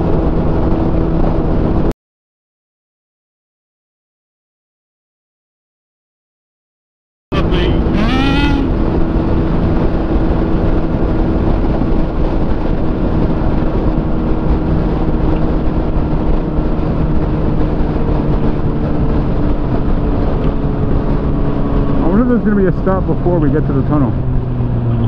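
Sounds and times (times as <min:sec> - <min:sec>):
wind rush: 0:00.0 - 0:01.9, 0:07.4 - 0:25.0
motorcycle engine cruising: 0:07.4 - 0:25.0.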